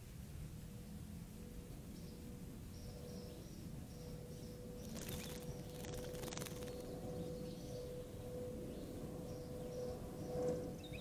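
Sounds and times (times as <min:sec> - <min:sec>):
faint steady hum: 0:00.0 - 0:11.0
bird wings splashing water: 0:04.9 - 0:06.8.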